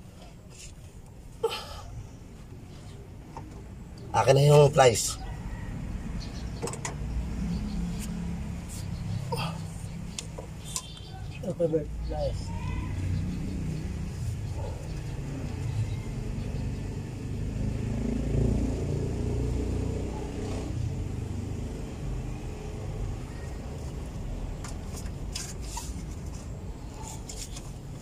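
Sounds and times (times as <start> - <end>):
brake springs clicking and clinking: 6.6 - 7.0.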